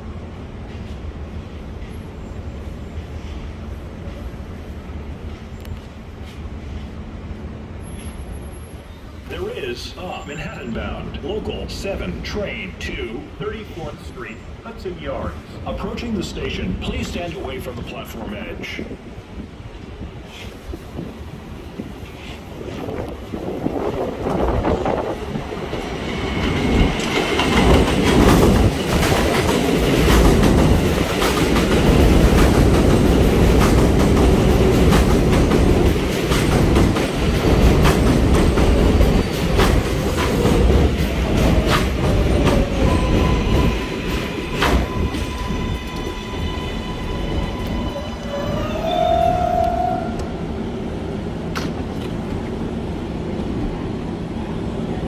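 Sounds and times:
heavy train rumble: 0.0s - 55.0s
train wheels clattering over rail joints: 25.7s - 46.1s
train whine falling in pitch: 42.7s - 50.4s.

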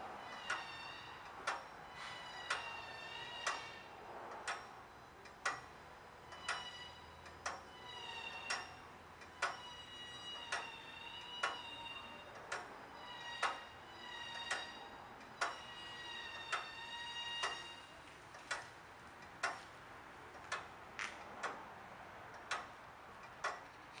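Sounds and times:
clock ticking: 8.5s - 9.7s, 17.4s - 17.7s, 18.4s - 19.6s, 22.4s - 22.7s.

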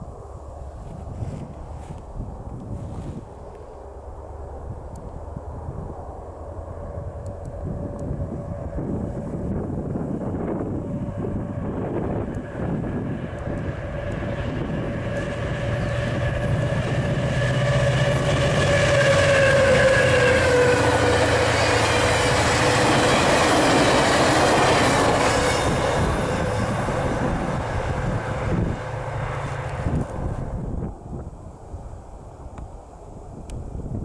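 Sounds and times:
diesel locomotives passing: 0.0s - 34.0s
train cars rolling on rails: 6.1s - 30.6s.

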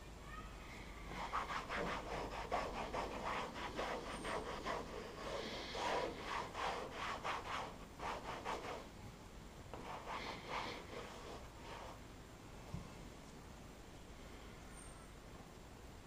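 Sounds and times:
towel rubbing on hard plastic: 1.1s - 8.9s, 9.8s - 12.0s.

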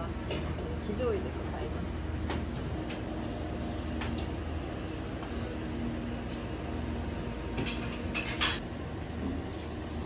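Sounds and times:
restaurant room hum: 0.0s - 10.0s.

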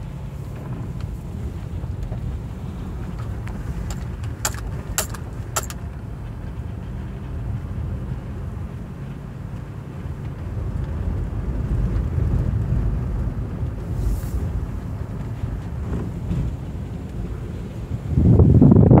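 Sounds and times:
car driving on dirt road: 0.0s - 19.0s
wind on microphone: 10.6s - 19.0s.

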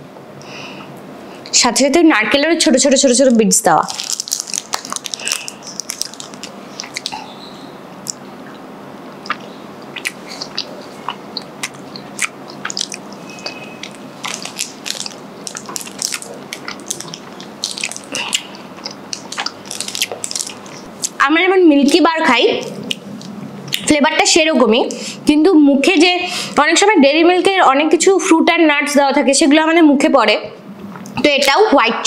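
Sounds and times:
wrapper crinkling: 3.3s - 7.2s, 11.6s - 21.2s
chocolate snapping: 4.0s - 7.2s, 11.4s - 13.0s
close chewing: 4.0s - 7.3s, 9.2s - 21.2s.

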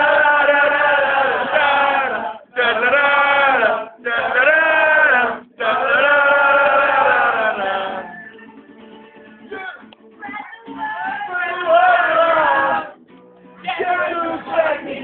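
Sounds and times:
men singing wordless chant: 0.0s - 8.2s, 13.7s - 15.0s.

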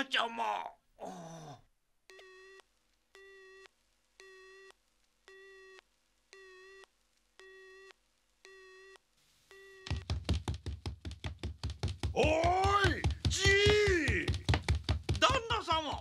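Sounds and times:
telephone busy tone beeps: 2.1s - 2.6s, 3.2s - 4.7s, 5.3s - 5.8s, 6.4s - 7.9s, 8.5s - 10.0s.

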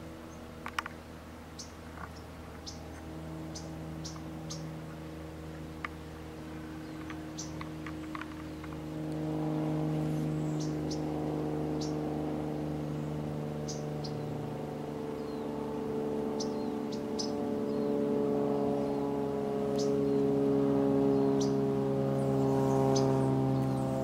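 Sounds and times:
low mechanical hum: 0.0s - 24.0s.

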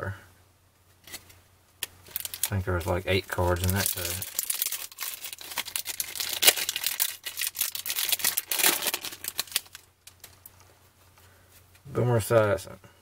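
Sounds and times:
foil pack tearing and crinkling: 2.1s - 9.9s.

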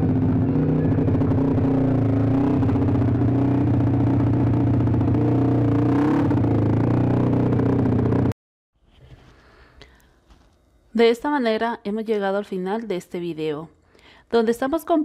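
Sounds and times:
vehicle engine running loudly: 0.0s - 8.3s.

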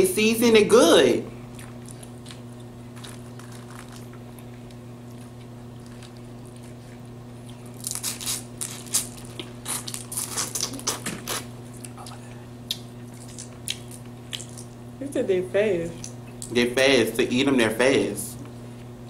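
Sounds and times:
low steady hum: 0.0s - 19.0s
crawfish shells cracking: 1.6s - 6.6s, 7.5s - 12.1s, 12.7s - 14.8s.

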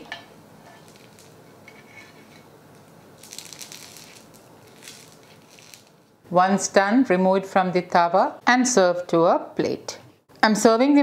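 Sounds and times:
low steady hiss: 0.0s - 11.0s
spatula scraping hot griddle: 0.6s - 2.5s.

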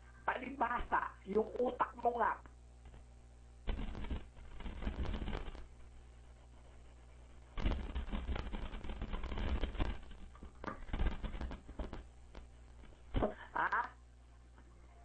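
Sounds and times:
low steady hum: 0.0s - 15.0s
crackling on a voice line: 0.2s - 3.1s, 3.7s - 5.7s, 7.5s - 14.0s.

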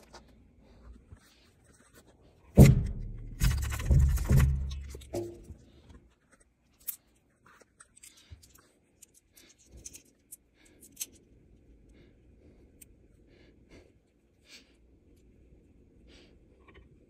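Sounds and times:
objects being handled: 0.0s - 11.4s.

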